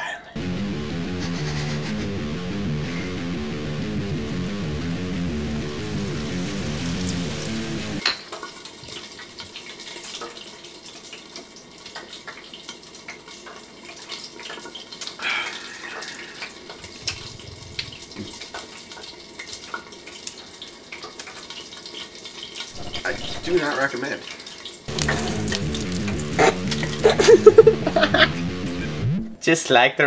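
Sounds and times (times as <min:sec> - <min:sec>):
oil bubbling and crackling in fryer: 0:08.0 - 0:26.3.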